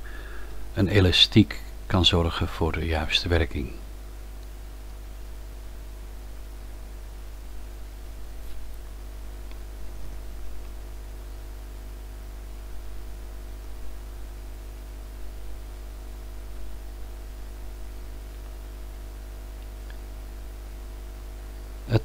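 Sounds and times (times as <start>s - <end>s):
electrical mains hum: 0.0s - 22.0s
recording hiss: 0.0s - 22.0s.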